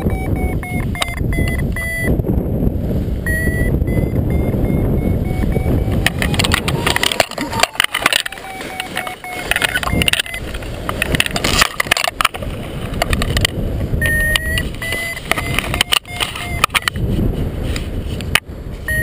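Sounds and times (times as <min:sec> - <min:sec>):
electronic beeping tone: 0:00.0 - 0:02.2, 0:03.2 - 0:10.6, 0:14.0 - 0:17.0
wind buffeting microphone: 0:00.0 - 0:19.0
lines flapping: 0:03.4 - 0:18.4
harness clicks and rattles: 0:05.9 - 0:17.0.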